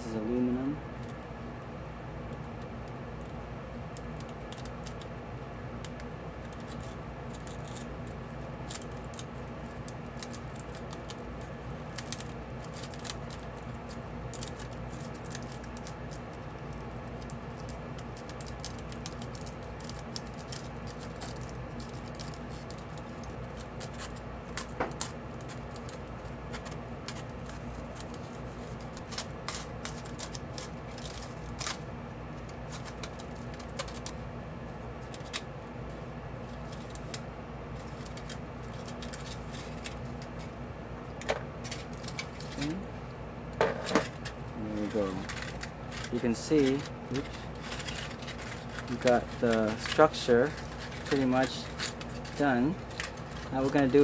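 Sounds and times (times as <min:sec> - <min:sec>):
low steady hum: 0:00.0 - 0:54.0
scissors snipping foil: 0:04.0 - 0:05.1, 0:05.8 - 0:31.8, 0:32.4 - 0:34.2, 0:36.6 - 0:40.3, 0:41.6 - 0:42.8, 0:44.0 - 0:54.0
foil crinkling: 0:06.4 - 0:34.2, 0:36.4 - 0:40.4, 0:41.6 - 0:42.8, 0:44.0 - 0:54.0.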